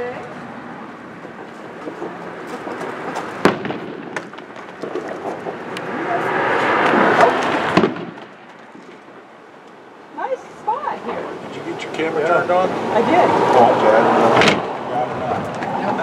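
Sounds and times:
fireworks popping and crackling: 0:01.2 - 0:09.2
sharp bang: 0:03.4 - 0:04.7, 0:07.0 - 0:08.4.

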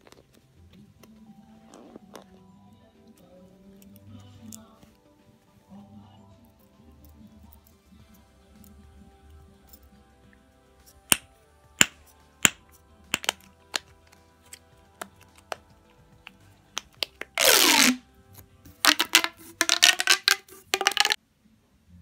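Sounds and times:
pop tubes stretched and squashed: 0:11.1 - 0:18.0, 0:18.7 - 0:21.2
fidget popper pops: 0:13.2 - 0:13.8, 0:18.9 - 0:21.2.

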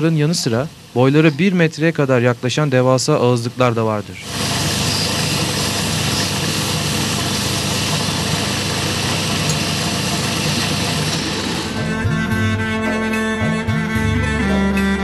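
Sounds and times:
sandpaper hissing on spinning wood: 0:04.2 - 0:12.0
lathe motor hum: 0:04.2 - 0:12.2.

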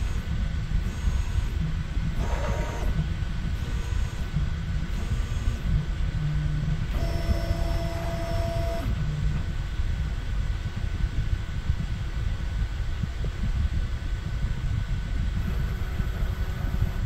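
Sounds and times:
stepper motor tones: 0:00.0 - 0:09.6, 0:15.4 - 0:17.0
motor whine: 0:00.0 - 0:11.7, 0:14.8 - 0:17.0
fan hum: 0:00.0 - 0:17.0.

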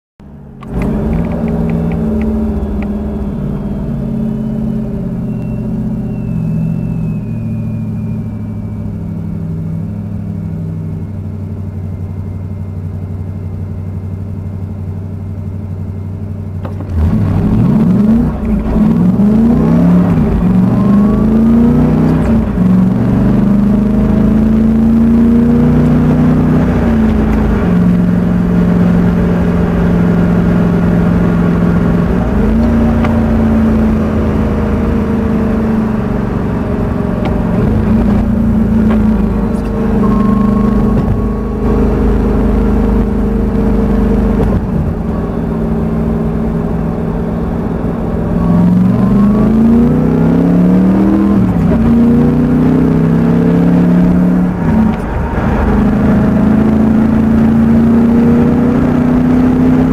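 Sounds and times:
car engine and road noise: 0:00.2 - 0:59.9.

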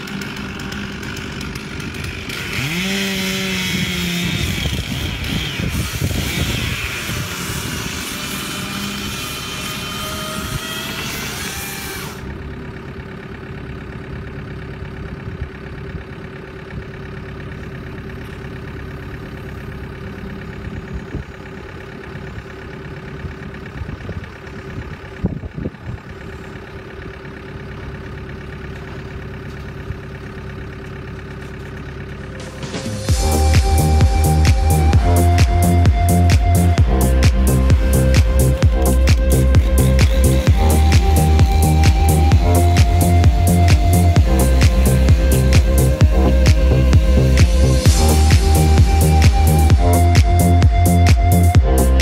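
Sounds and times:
saw cutting tree trunk: 0:00.0 - 0:12.4, 0:31.5 - 0:52.0
heavy machine engine running: 0:00.0 - 0:52.0.

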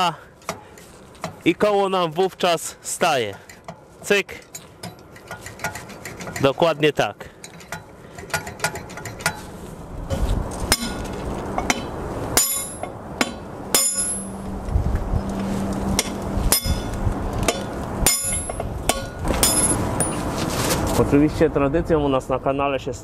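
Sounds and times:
hammer striking steel punch: 0:10.7 - 0:11.0, 0:11.7 - 0:14.4, 0:16.0 - 0:16.9, 0:17.5 - 0:20.2.

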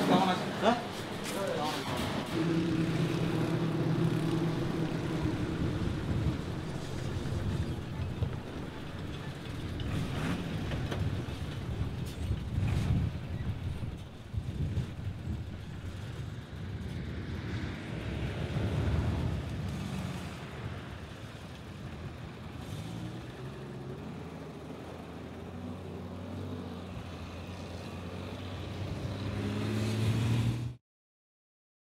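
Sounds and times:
vehicle engines running: 0:00.0 - 0:30.8.

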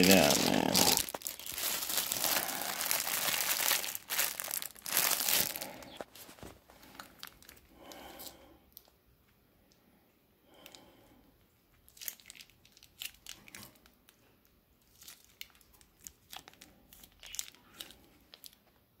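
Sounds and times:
plastic packet crinkling: 0:00.0 - 0:07.6, 0:11.9 - 0:14.0, 0:14.9 - 0:18.6.

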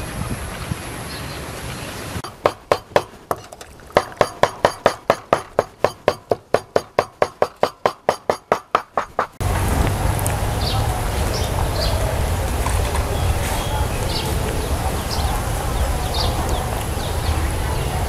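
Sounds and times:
rapid sharp clacks: 0:02.2 - 0:09.9
bird chirps: 0:10.0 - 0:18.0.

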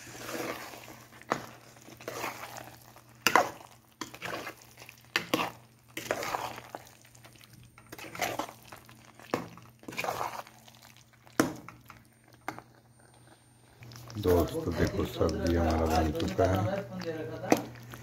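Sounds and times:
ladle stirring thick curry: 0:00.0 - 0:12.9.

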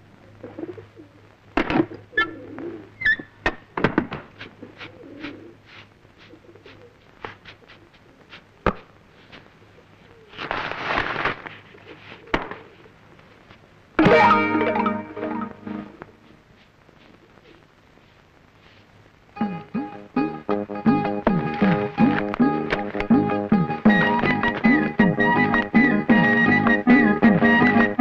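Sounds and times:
pigeons cooing: 0:00.4 - 0:01.3, 0:02.0 - 0:03.2, 0:04.4 - 0:07.0, 0:09.7 - 0:10.4, 0:11.7 - 0:13.0.

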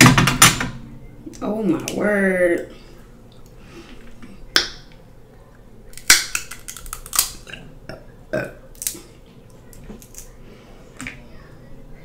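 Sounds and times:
crab shell cracking: 0:05.9 - 0:07.6, 0:08.7 - 0:09.1, 0:09.8 - 0:10.3.

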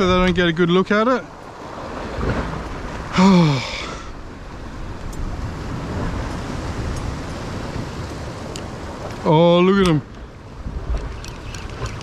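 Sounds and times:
wind on microphone: 0:00.0 - 0:00.7, 0:09.8 - 0:12.0
sea surging against rocks: 0:00.0 - 0:12.0.

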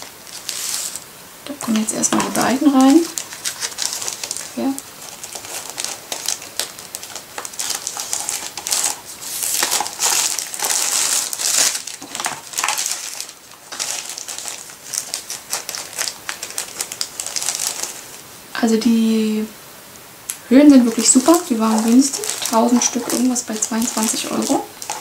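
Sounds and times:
plastic sheets rustling: 0:00.0 - 0:18.4, 0:20.5 - 0:25.0.

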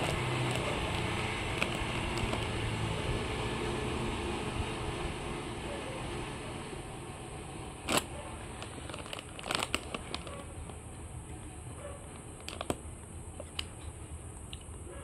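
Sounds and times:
plastic bottle crackling: 0:00.0 - 0:02.9, 0:07.8 - 0:10.8, 0:12.4 - 0:12.8
low background hum: 0:05.7 - 0:15.0.

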